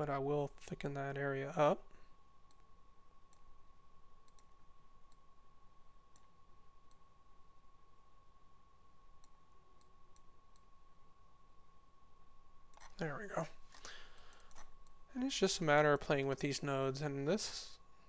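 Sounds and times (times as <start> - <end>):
faint steady whine: 0.0 - 18.0
computer mouse clicks: 2.4 - 2.7, 3.3 - 3.5, 4.2 - 4.5, 12.7 - 13.0, 13.7 - 15.0.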